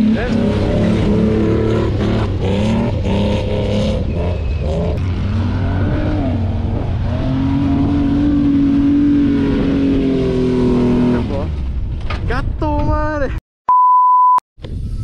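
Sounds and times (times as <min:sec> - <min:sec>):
off-road vehicle engine revving: 0:00.0 - 0:12.0.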